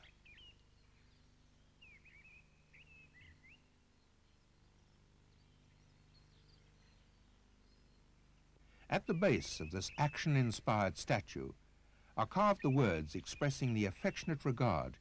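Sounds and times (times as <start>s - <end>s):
faint bird chirps: 0.0s - 10.4s
low steady hum and hiss: 0.0s - 15.0s.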